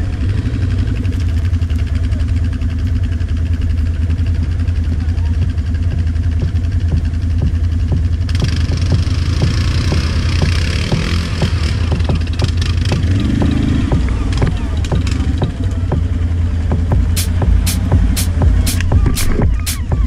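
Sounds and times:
engine humming: 0:00.0 - 0:20.0.

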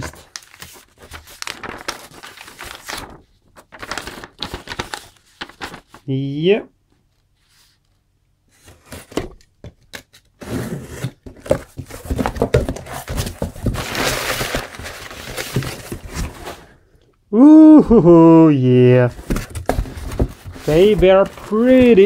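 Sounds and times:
packing paper rustling: 0:00.0 - 0:06.4, 0:10.5 - 0:16.9, 0:19.0 - 0:22.0
cardboard scraping: 0:10.3 - 0:16.7, 0:19.1 - 0:22.0.

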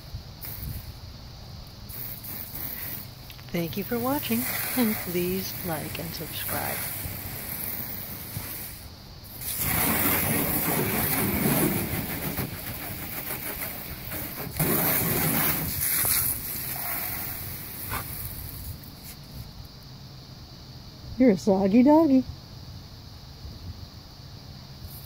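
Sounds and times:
garden hose spraying water: 0:00.0 - 0:19.5.

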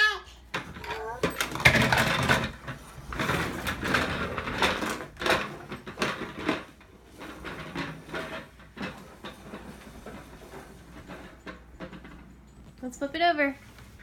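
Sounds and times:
toy rattling on wooden floor: 0:00.6 - 0:06.8.

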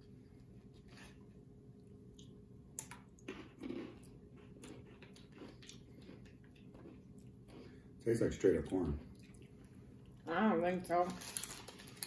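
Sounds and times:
crunchy snack being chewed: 0:02.2 - 0:07.8
plastic wrapper crackling: 0:10.9 - 0:12.0.

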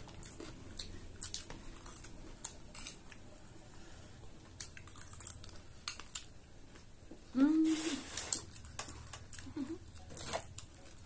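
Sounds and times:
chewing: 0:00.0 - 0:03.4, 0:04.5 - 0:06.4, 0:08.2 - 0:11.0.

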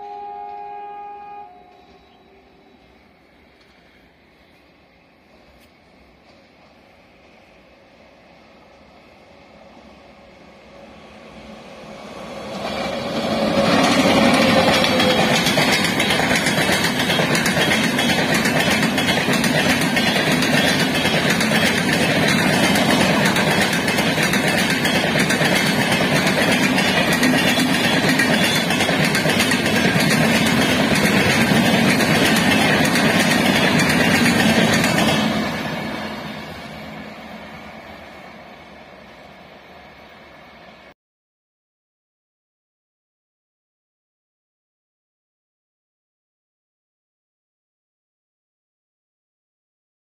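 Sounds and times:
train wheels clattering on rails: 0:12.4 - 0:37.4.

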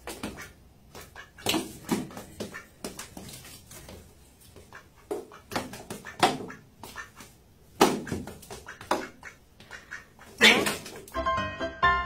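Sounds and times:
duck calling: 0:00.1 - 0:03.0, 0:04.6 - 0:11.1.

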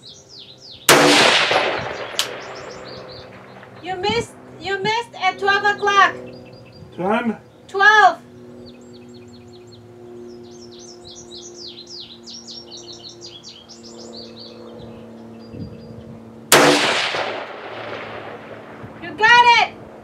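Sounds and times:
songbirds chirping: 0:00.0 - 0:16.6
rifle shot: 0:00.9 - 0:03.8, 0:16.5 - 0:19.0.

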